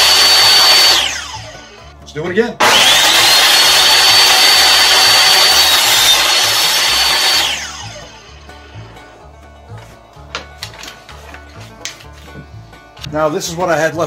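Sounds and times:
saw blade spinning down: 0:00.0 - 0:01.9, 0:02.6 - 0:08.3
table saw whining: 0:00.0 - 0:02.0, 0:02.6 - 0:08.7.

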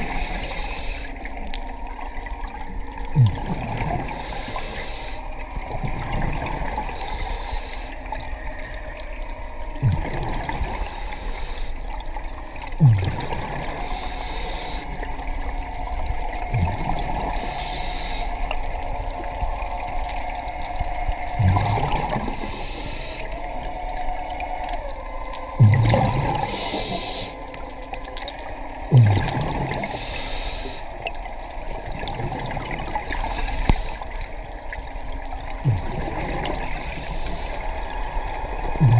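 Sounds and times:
regulator inhale hiss: 0:00.0 - 0:01.4, 0:04.0 - 0:05.4, 0:06.8 - 0:08.3, 0:10.6 - 0:12.0, 0:13.5 - 0:15.2, 0:17.2 - 0:18.7, 0:22.0 - 0:23.4, 0:26.3 - 0:27.6, 0:29.8 - 0:31.0, 0:33.0 - 0:34.3, 0:35.7 - 0:38.0
exhaled bubbles underwater: 0:00.0 - 0:38.9
steady tone: 0:21.4 - 0:22.7, 0:25.6 - 0:27.4, 0:35.7 - 0:36.0.

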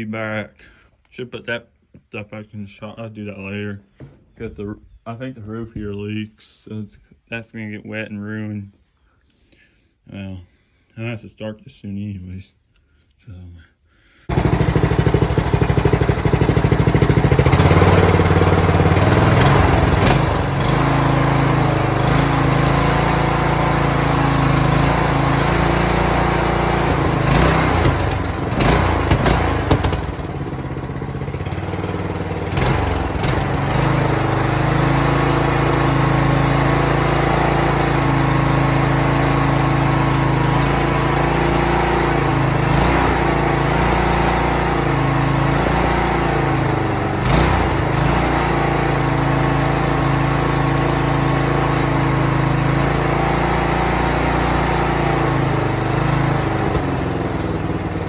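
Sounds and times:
lawnmower engine running: 0:14.3 - 0:58.0.

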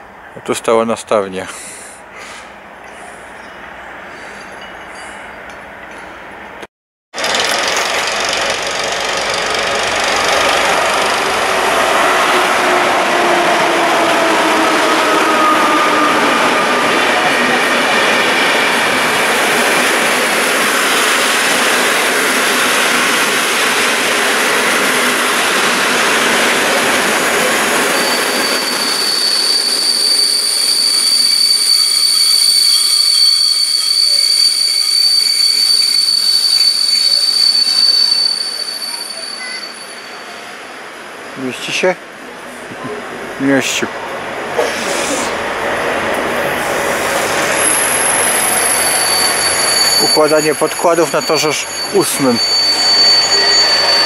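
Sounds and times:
train wheels rolling: 0:07.2 - 0:40.7
high-pitched wheel squeal: 0:27.7 - 0:40.4, 0:47.6 - 0:54.0.

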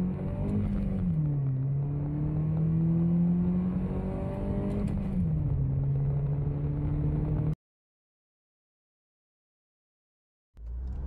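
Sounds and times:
car engine accelerating hard: 0:00.0 - 0:07.6.

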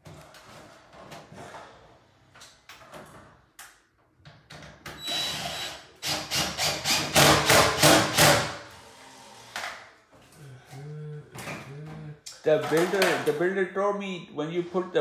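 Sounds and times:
cordless drill whirring: 0:05.0 - 0:07.2.

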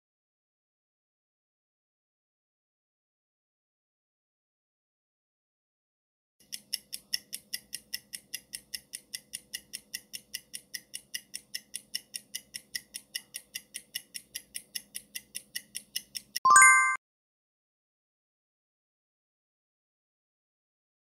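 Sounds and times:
clock ticking: 0:06.4 - 0:16.4.

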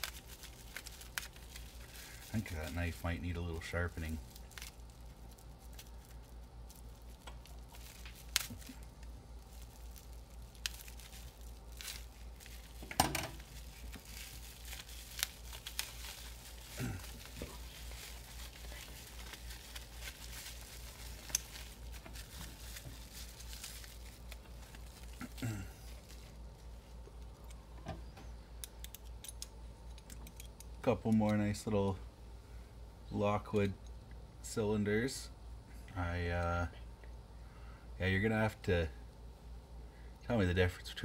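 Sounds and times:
tape tearing: 0:00.0 - 0:02.9, 0:04.0 - 0:26.4
bubble wrap crinkling: 0:00.0 - 0:27.7.

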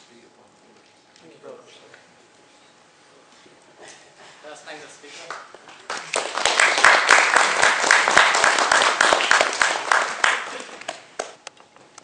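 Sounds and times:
audience applauding: 0:05.2 - 0:11.4.

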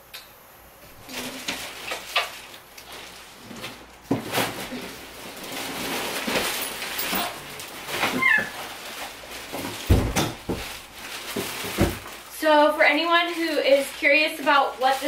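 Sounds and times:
plastic wrap crinkling: 0:00.9 - 0:15.0
cardboard scraping: 0:01.0 - 0:12.3.

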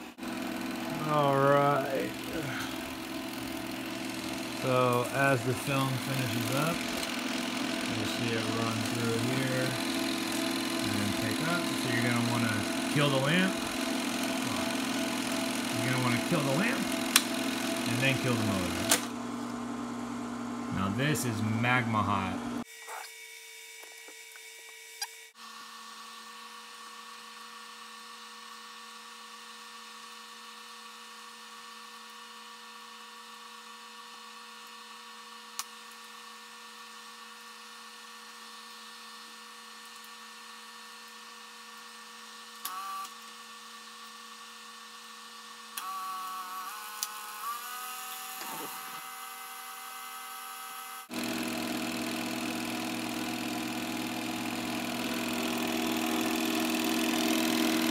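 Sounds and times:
film projector motor humming: 0:00.0 - 0:57.9
projector clicks: 0:17.0 - 0:17.6.

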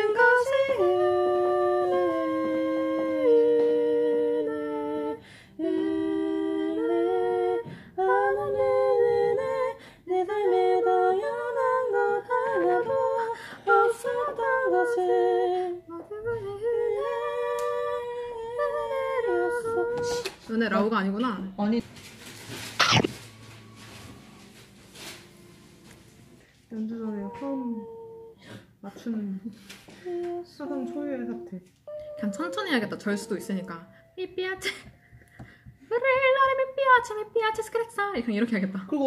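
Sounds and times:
women singing hymn in harmony: 0:00.0 - 0:20.9, 0:26.8 - 0:31.5
singers breathing: 0:05.2 - 0:05.6.

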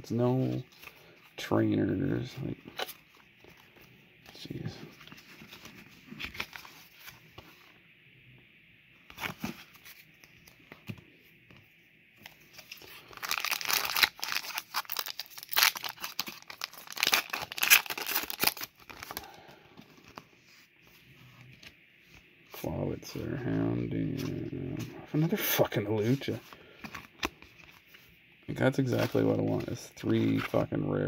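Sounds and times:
foil wrapper tearing and crinkling: 0:12.8 - 0:19.2.

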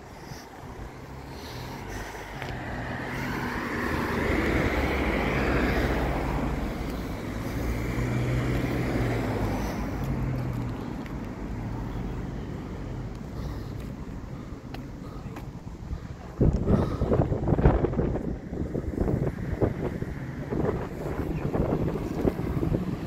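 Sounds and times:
vehicle driving past: 0:01.0 - 0:12.7.

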